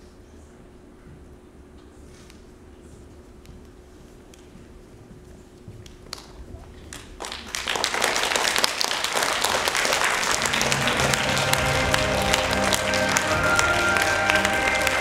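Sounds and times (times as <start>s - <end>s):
audience applause: 6.9s - 15.0s
music with long held notes: 10.2s - 15.0s.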